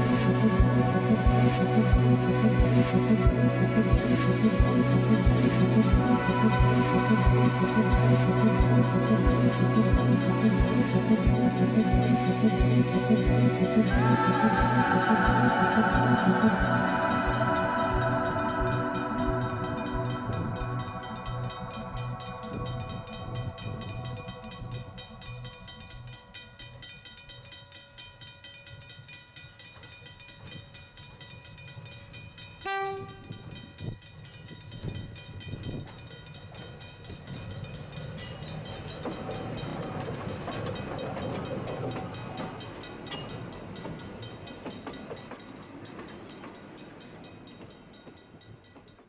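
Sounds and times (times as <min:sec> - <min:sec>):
train wheels on rails: 0:00.0 - 0:49.0
locomotive horn: 0:32.6 - 0:33.4.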